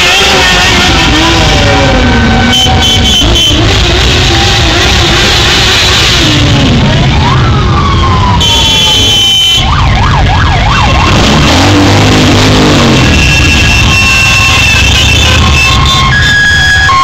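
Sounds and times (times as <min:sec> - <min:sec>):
horn blast: 0:00.0 - 0:06.7, 0:08.3 - 0:09.7, 0:11.0 - 0:16.6
motorcycle engines passing: 0:00.0 - 0:17.0
siren wailing and yelping: 0:06.4 - 0:17.0.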